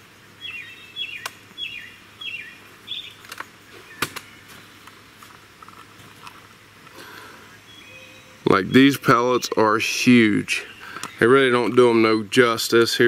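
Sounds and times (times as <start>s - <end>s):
bird whistling notes: 0.4s - 4.5s, 7.4s - 8.5s.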